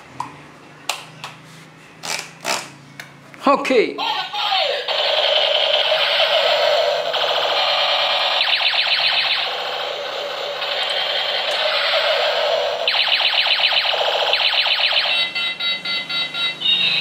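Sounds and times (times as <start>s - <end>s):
toy gun electronic warble: 4.8s - 17.0s.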